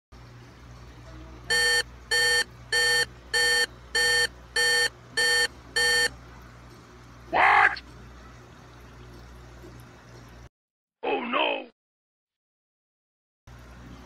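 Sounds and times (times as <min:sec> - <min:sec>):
low steady hum: 0:00.2 - 0:10.5
electronic alarm beeps: 0:01.5 - 0:06.1.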